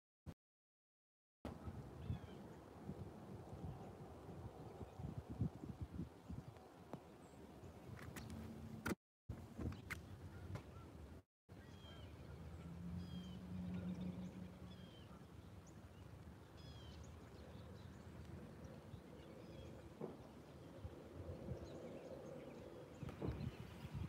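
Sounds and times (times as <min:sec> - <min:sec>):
birds chirping: 0:09.7 - 0:24.0.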